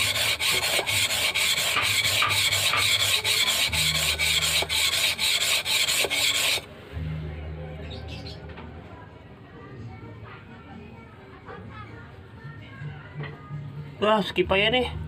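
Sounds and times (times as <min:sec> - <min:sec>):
blade scraping on whetstone: 0:00.0 - 0:06.7.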